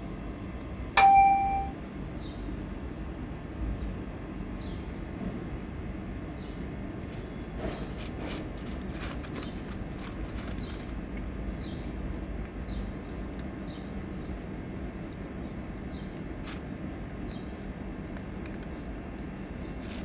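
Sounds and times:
low outdoor rumble: 0:00.0 - 0:20.0.

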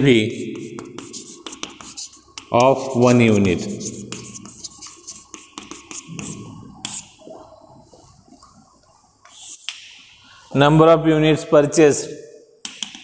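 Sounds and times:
chalk writing on blackboard: 0:00.0 - 0:07.2, 0:09.2 - 0:09.8.

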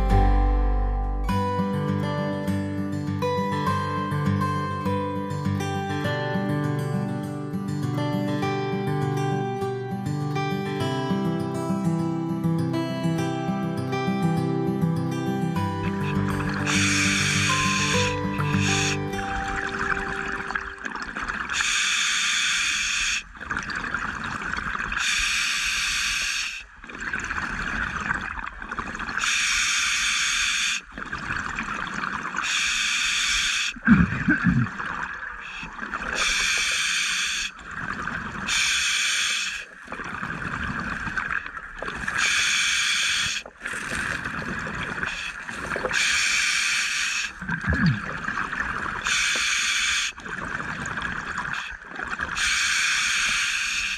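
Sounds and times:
exhaled bubbles gushing: 0:15.6 - 0:21.8, 0:23.2 - 0:25.1, 0:26.8 - 0:29.3, 0:30.9 - 0:32.5, 0:33.8 - 0:36.8, 0:37.5 - 0:38.7, 0:39.6 - 0:42.5, 0:43.2 - 0:46.5, 0:47.2 - 0:49.4, 0:50.1 - 0:52.6.

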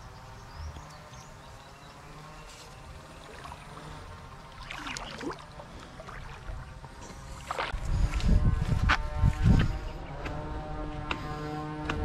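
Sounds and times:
creek water trickling: 0:00.1 - 0:08.2
water splashing: 0:02.6 - 0:08.1.

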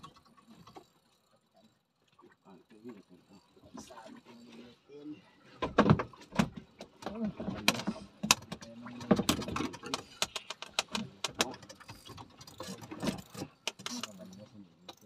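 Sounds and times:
sharp clicks and knocks: 0:05.6 - 0:15.0.

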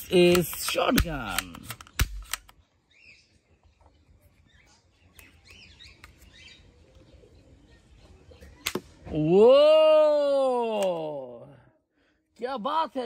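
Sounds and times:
plastic toy gun clicks: 0:00.0 - 0:02.6
faint birds chirping: 0:00.0 - 0:13.0.

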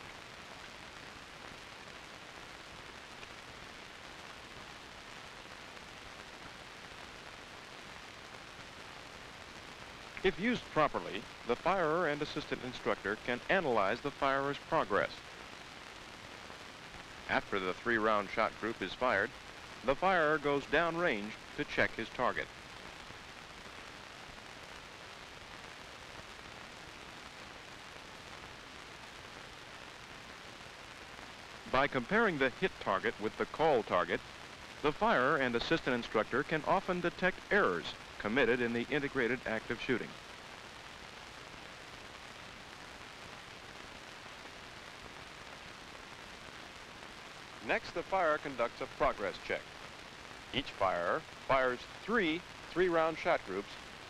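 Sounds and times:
film soundtrack hiss: 0:00.0 - 0:54.0.

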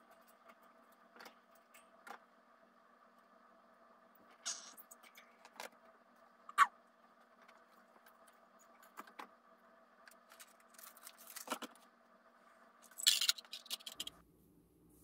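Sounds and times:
items clicking and knocking: 0:00.0 - 0:02.4, 0:07.2 - 0:09.4, 0:10.0 - 0:12.0, 0:12.8 - 0:14.2
faint steady hum: 0:00.0 - 0:15.0
rustling and scraping: 0:10.1 - 0:11.9.

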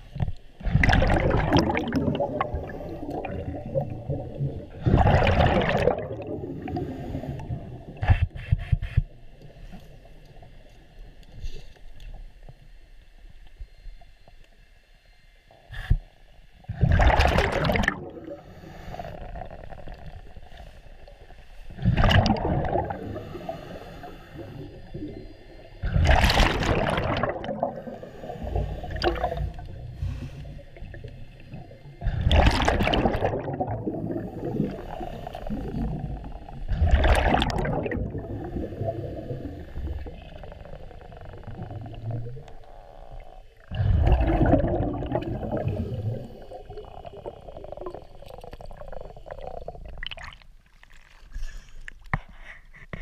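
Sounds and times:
exhaled bubbles rushing: 0:00.6 - 0:08.0, 0:16.7 - 0:18.5, 0:19.1 - 0:23.5, 0:24.4 - 0:30.0, 0:30.8 - 0:51.3
regulator breathing underwater: 0:01.7 - 0:05.1, 0:06.0 - 0:09.1, 0:18.1 - 0:26.0, 0:27.0 - 0:37.2, 0:37.8 - 0:49.9.

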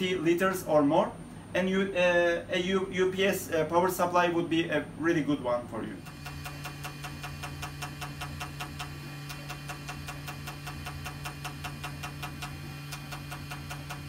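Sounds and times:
milling machine motor hum: 0:04.7 - 0:14.0
rapid even cutting ticks: 0:06.2 - 0:14.0.

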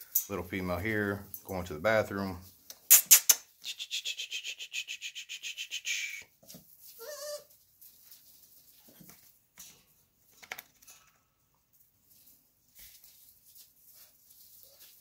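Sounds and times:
puppy whining: 0:07.0 - 0:07.5.

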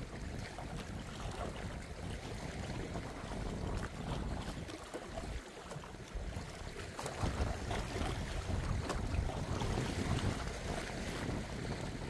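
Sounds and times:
sea waves washing: 0:00.0 - 0:12.0
wind buffeting microphone: 0:00.0 - 0:12.0.

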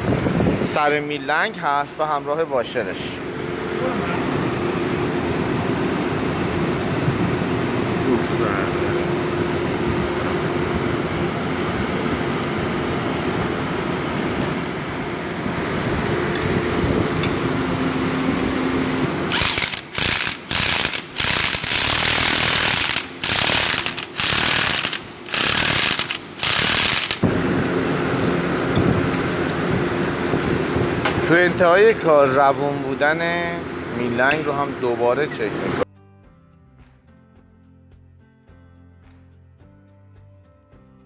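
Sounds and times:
low workshop hum: 0:00.0 - 0:35.9
impact wrench hammering: 0:19.3 - 0:27.3.

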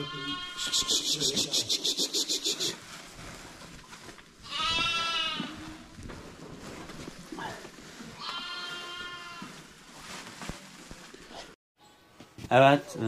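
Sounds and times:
lambs bleating: 0:00.0 - 0:01.1, 0:04.4 - 0:05.5, 0:08.2 - 0:09.5.

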